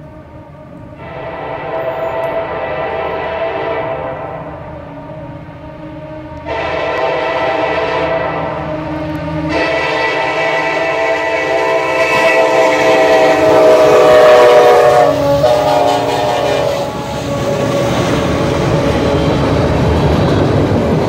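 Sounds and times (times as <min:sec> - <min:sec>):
locomotive air horn: 0:00.0 - 0:19.0
diesel locomotive engine: 0:00.0 - 0:21.0
train wheels clattering over rails: 0:11.9 - 0:21.0.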